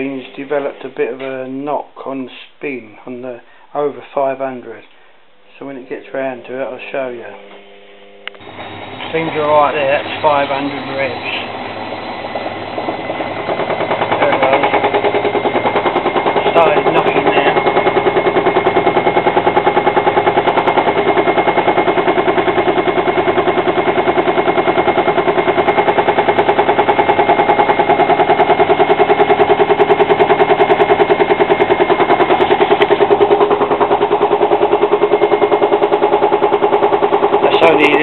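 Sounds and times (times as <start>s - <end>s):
washing machine spinning: 8.3s - 38.0s
rapid even knocking: 9.2s - 38.0s.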